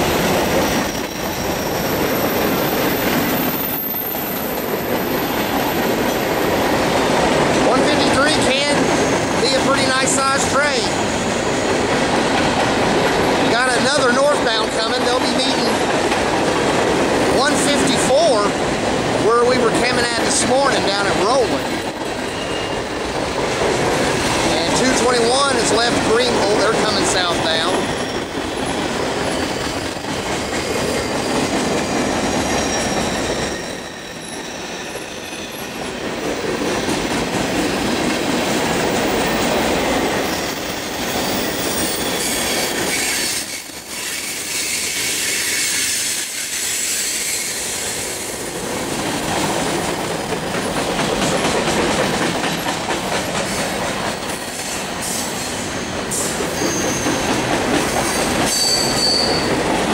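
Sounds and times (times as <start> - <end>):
high wheel squeal: 0.0 - 6.8, 22.2 - 23.0, 26.4 - 35.8, 40.2 - 48.4, 55.0 - 59.6
clickety-clack over rail joints: 0.0 - 34.6, 35.5 - 46.6, 48.4 - 59.9
freight train wheels rumbling: 0.0 - 59.9.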